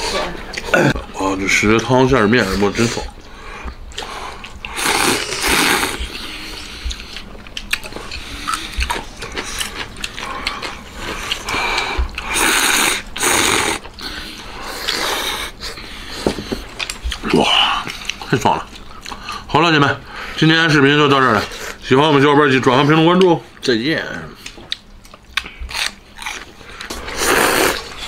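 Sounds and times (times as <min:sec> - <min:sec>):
chewing: 0:03.6 - 0:19.5, 0:24.4 - 0:28.0
person slurping noodles: 0:04.7 - 0:06.7, 0:12.2 - 0:13.8, 0:27.0 - 0:28.0.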